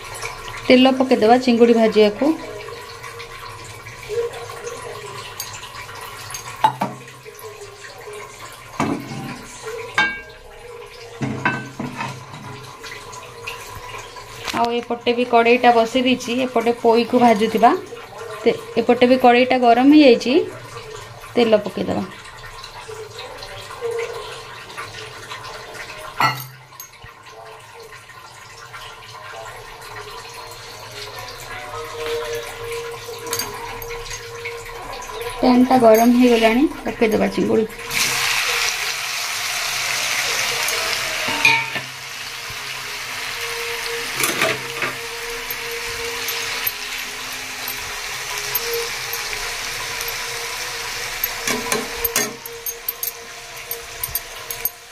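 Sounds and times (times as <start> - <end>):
cookware knocking on metal stove: 6.6 - 7.1, 11.2 - 12.6, 51.3 - 54.8.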